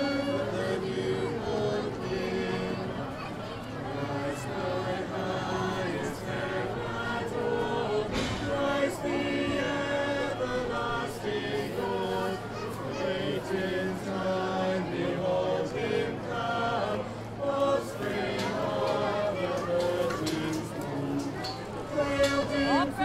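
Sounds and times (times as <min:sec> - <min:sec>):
choir singing: 0:00.0 - 0:23.0.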